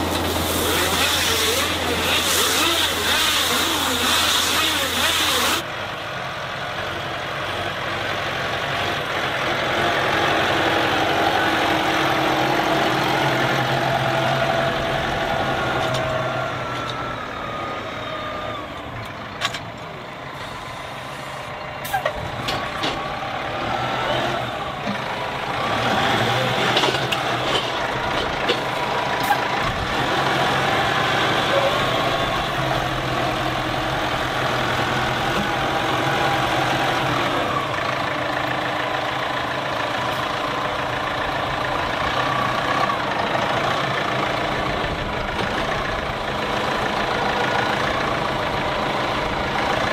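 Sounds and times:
tractor diesel engine running: 0.0s - 49.9s.

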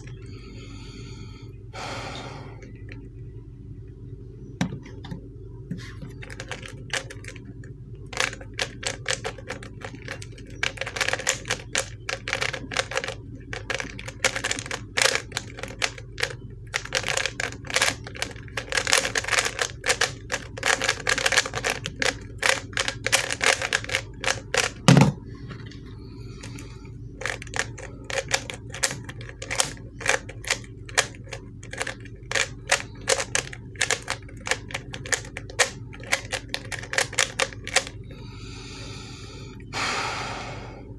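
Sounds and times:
plastic puzzle cube clicking: 27.2s - 37.9s.

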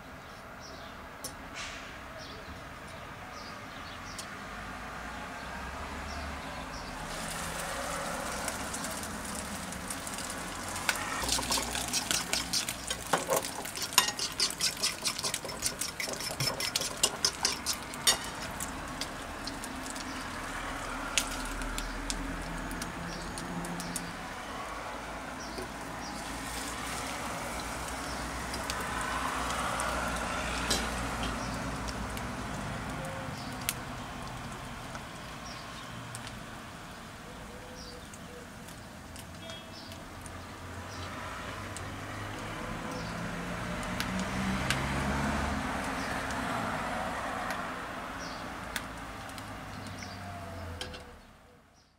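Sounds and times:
bread sizzling in oil: 6.9s - 24.2s, 25.7s - 36.5s
oil crackling and popping: 6.9s - 37.2s, 38.0s - 50.2s.

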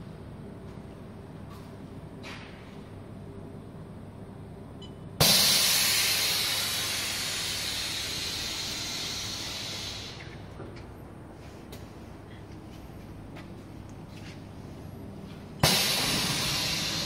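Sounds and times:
compressed air hissing: 5.2s - 10.4s, 15.6s - 17.0s.

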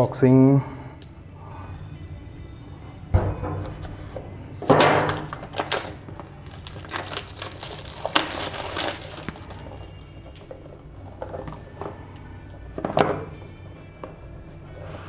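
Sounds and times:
plastic shrink wrap crinkling: 5.2s - 10.5s.

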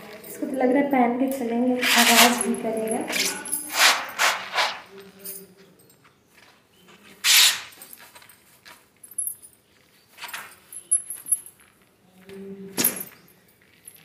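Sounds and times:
fabric rustling and scuffing: 1.8s - 5.0s, 6.4s - 9.1s
faint high jingling: 7.7s - 11.8s.

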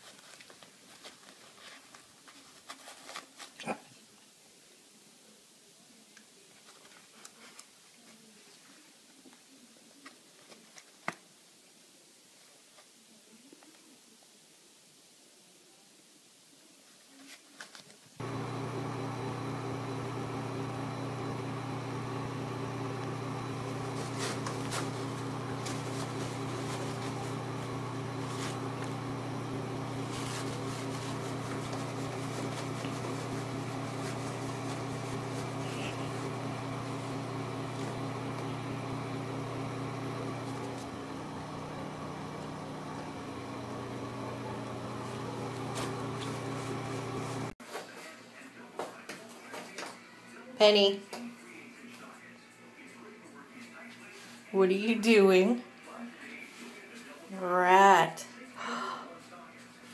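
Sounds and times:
low mechanical hum: 18.2s - 47.6s.

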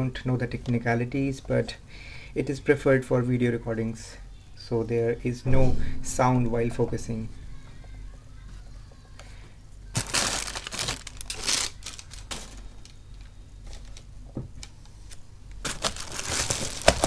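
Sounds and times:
plastic packaging crinkling: 9.9s - 17.0s.

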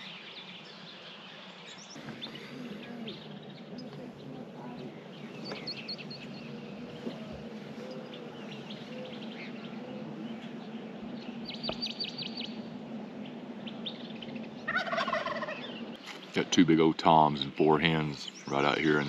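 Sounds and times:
birds chirping: 0.0s - 19.0s
turkey gobbling: 14.6s - 15.7s.

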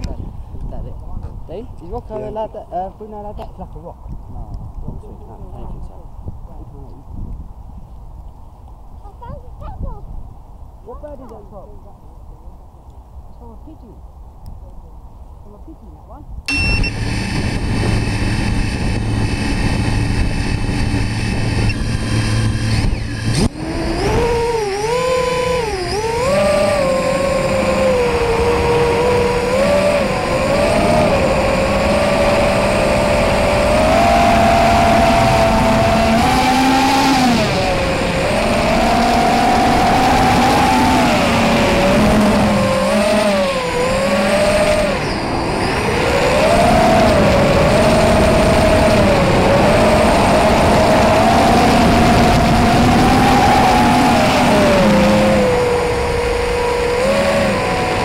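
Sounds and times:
quadcopter motors whining: 16.5s - 58.0s.

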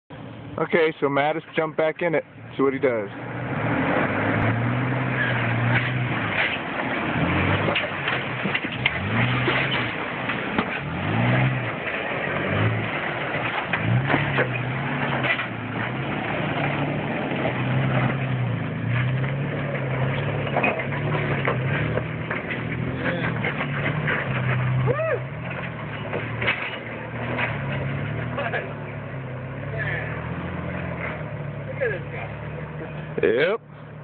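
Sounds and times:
engine revving: 2.7s - 34.0s
rocks crunching under tyres: 5.2s - 29.2s.

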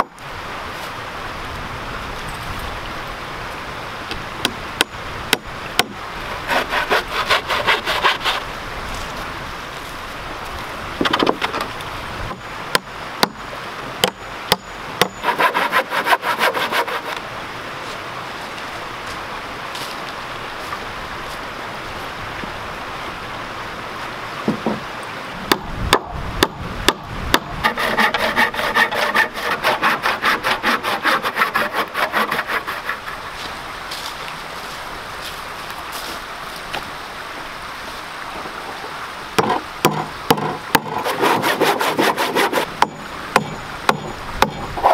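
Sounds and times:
handsaw strokes through wood: 6.3s - 8.5s, 15.1s - 17.2s, 27.6s - 33.4s, 40.8s - 42.7s
wooden boards knocking: 11.0s - 11.7s, 24.5s - 24.8s, 39.4s - 42.0s.

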